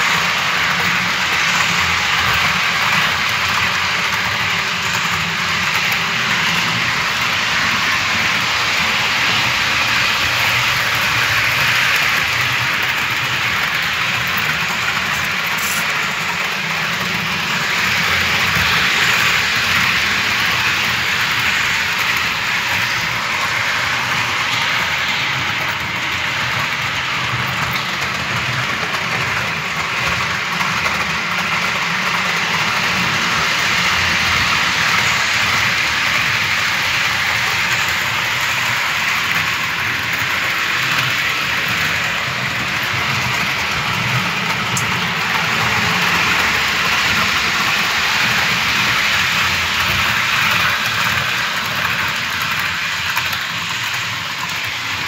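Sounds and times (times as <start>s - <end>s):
model train motor whirring: 0.0s - 55.0s.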